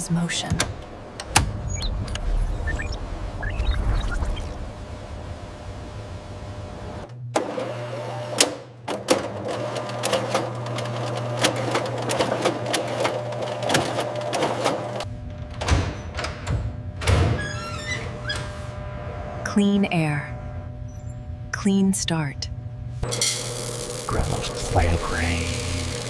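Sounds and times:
printing machine humming: 0:09.0 - 0:15.1, 0:23.1 - 0:26.0.

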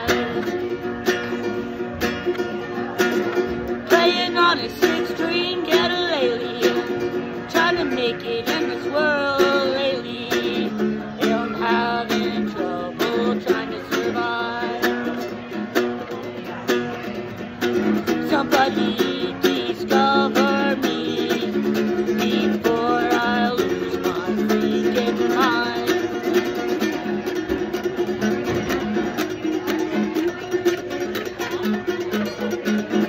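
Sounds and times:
man singing: 0:00.0 - 0:00.6, 0:03.9 - 0:15.2, 0:18.1 - 0:26.5
acoustic guitar strumming: 0:00.0 - 0:33.0.

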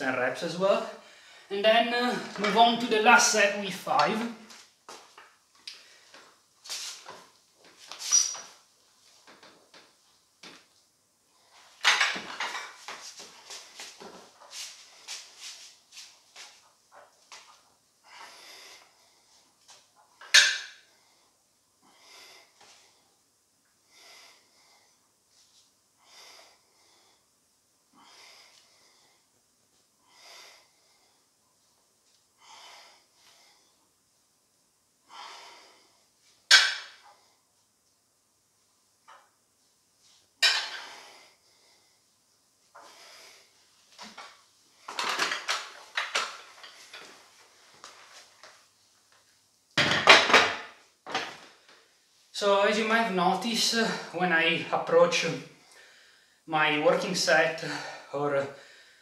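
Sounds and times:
metal dumbbells clacking and rattling: 0:11.8 - 0:12.8, 0:20.2 - 0:20.8.

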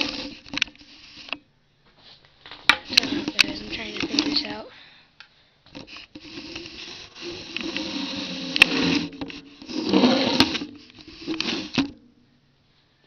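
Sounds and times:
camera handling rubbing noise: 0:00.0 - 0:01.4, 0:02.8 - 0:04.6, 0:05.7 - 0:12.0.

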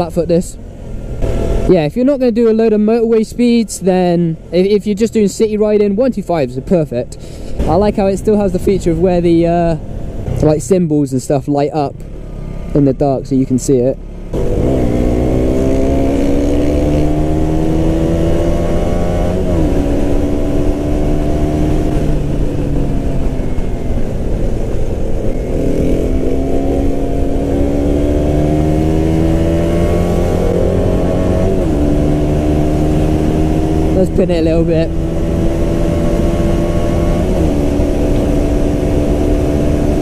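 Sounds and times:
motorcycle engine accelerating: 0:00.0 - 0:06.0, 0:07.1 - 0:10.8, 0:11.7 - 0:40.0
wind noise: 0:14.4 - 0:40.0.

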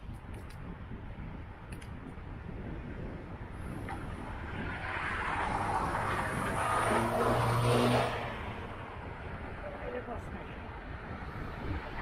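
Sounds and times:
vehicle passing: 0:04.2 - 0:10.3.

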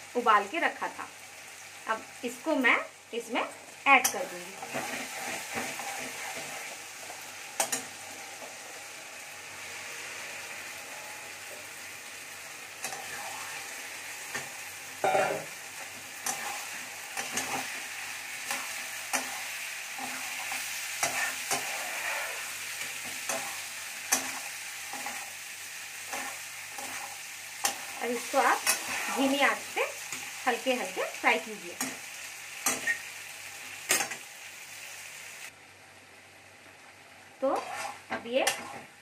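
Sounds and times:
food sizzling in a pan: 0:00.0 - 0:39.0
metal spatula scraping a pan: 0:04.0 - 0:08.5, 0:12.8 - 0:25.3, 0:26.0 - 0:30.3, 0:37.4 - 0:38.9.

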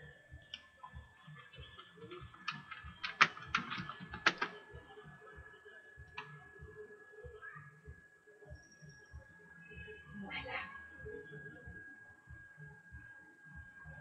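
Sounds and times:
keyboard typing: 0:01.4 - 0:04.8
faint steady high tone: 0:04.7 - 0:14.0.

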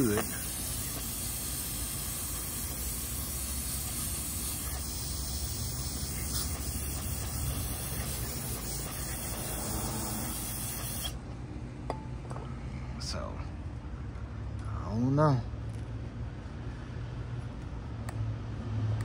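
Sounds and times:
aerosol spray hissing: 0:00.0 - 0:11.2.

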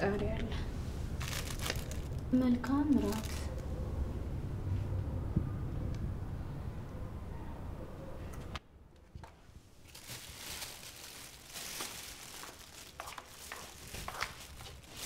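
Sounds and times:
low steady rumble: 0:00.0 - 0:07.8
foil wrapping crinkling: 0:01.2 - 0:02.3, 0:02.9 - 0:03.6, 0:09.8 - 0:15.0.

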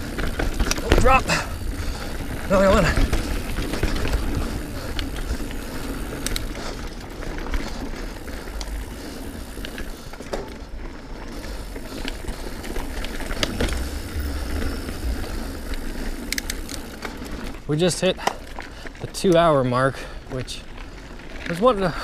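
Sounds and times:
bike tyres on dirt: 0:00.0 - 0:22.0
wind rumble on microphone: 0:13.2 - 0:16.8.

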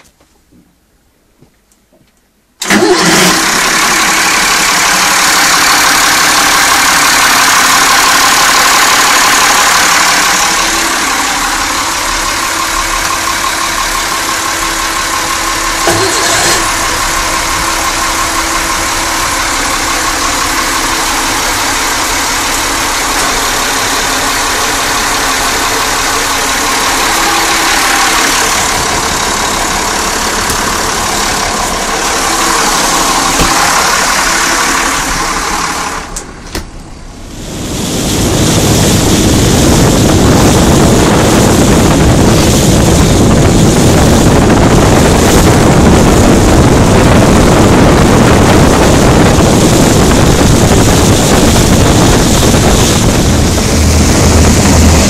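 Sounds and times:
diesel engine running: 0:02.6 - 0:55.0.

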